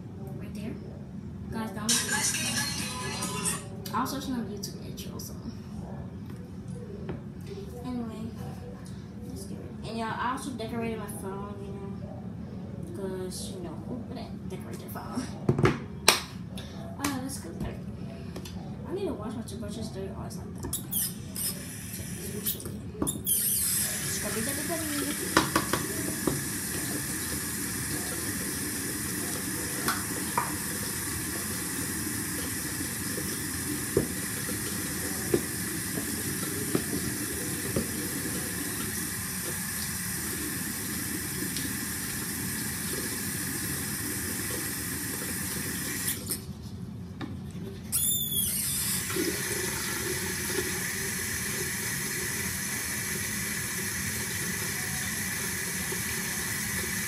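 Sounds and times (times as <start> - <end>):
tap running into a sink: 22.4 - 43.2.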